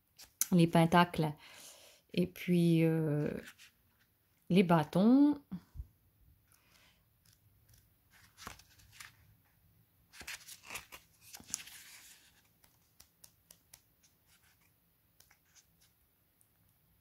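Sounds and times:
paper pages turning: 0:06.5 - 0:09.3, 0:10.1 - 0:16.0.

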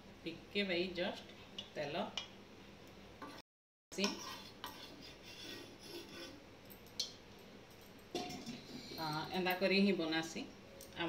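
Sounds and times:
metal spatula scraping pan: 0:04.0 - 0:06.4.

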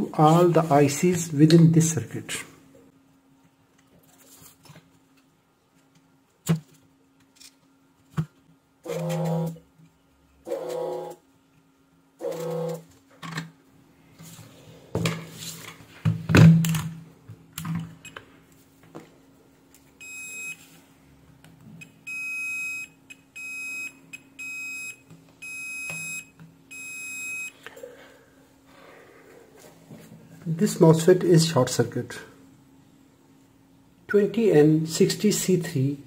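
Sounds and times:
multimeter continuity beeps: 0:20.0 - 0:20.6, 0:21.8 - 0:27.6.

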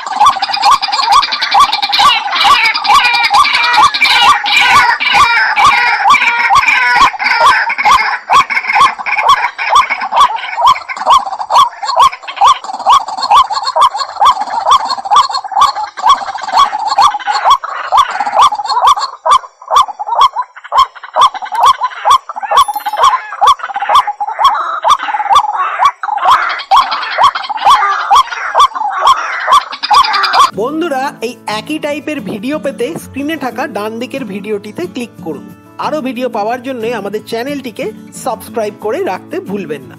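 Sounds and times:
waterhen calling: 0:00.0 - 0:31.4.

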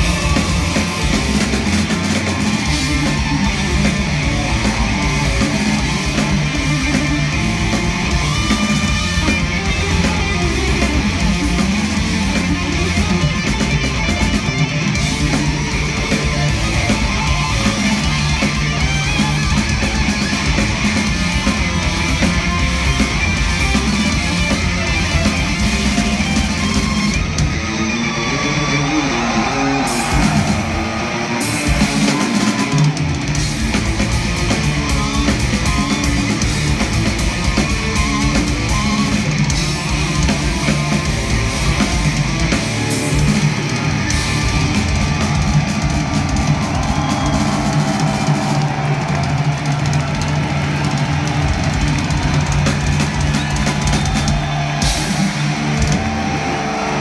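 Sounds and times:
heavy metal band playing live: 0:00.0 - 0:57.0.

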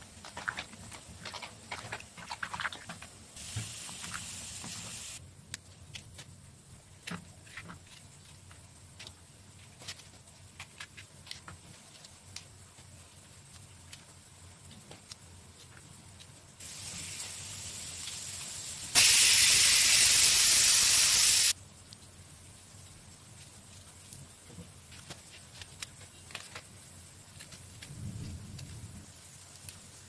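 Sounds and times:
vegetables rinsed in water: 0:00.0 - 0:05.2
steady hiss: 0:03.2 - 0:30.0.

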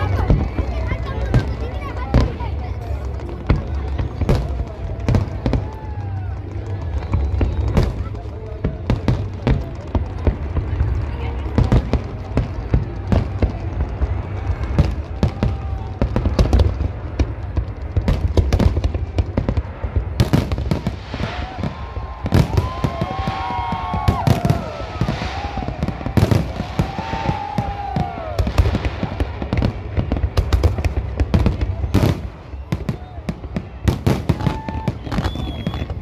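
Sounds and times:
firework bursts and bangs: 0:00.0 - 0:36.0
gliding firework whistles: 0:32.0 - 0:36.0.

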